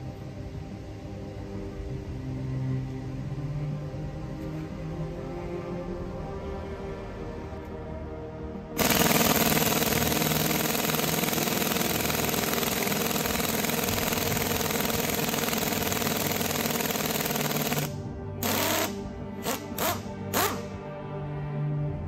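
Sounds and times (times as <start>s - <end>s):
pneumatic impact wrench hammering: 8.8s - 20.7s.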